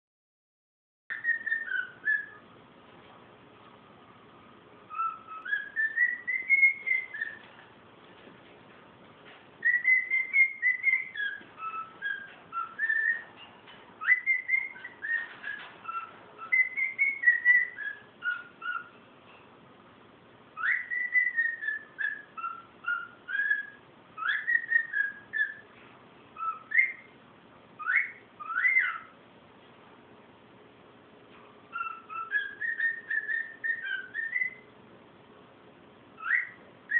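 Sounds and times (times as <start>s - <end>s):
cockatiel whistling: 1.1s - 2.5s, 4.9s - 7.6s, 9.6s - 13.4s, 14.0s - 19.0s, 20.6s - 25.7s, 26.4s - 27.2s, 27.8s - 29.2s, 31.7s - 34.7s, 36.2s - 36.9s.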